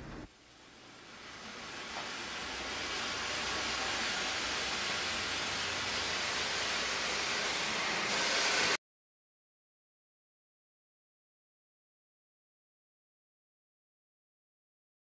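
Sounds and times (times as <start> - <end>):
steam hissing from locomotive: 0.3 - 8.8.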